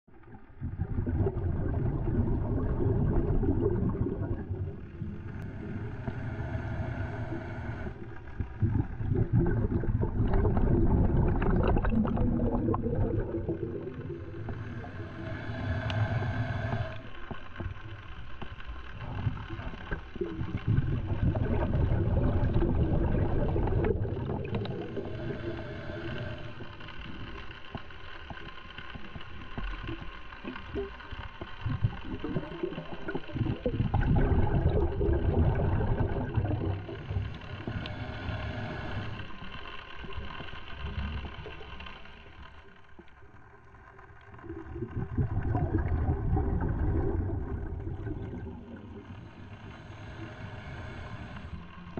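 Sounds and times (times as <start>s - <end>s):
bubbling exhales underwater: 0.3s - 6.4s, 7.7s - 17.1s, 19.0s - 27.3s, 31.6s - 39.4s, 44.3s - 51.0s
regulator inhales with hum: 1.1s - 43.3s, 44.3s - 51.9s.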